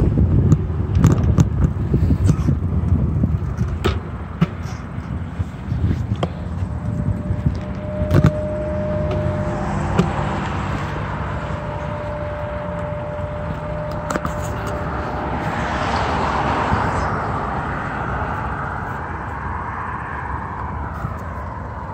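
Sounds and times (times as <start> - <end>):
low traffic rumble: 0.0 - 21.9
car passing by: 6.6 - 21.9.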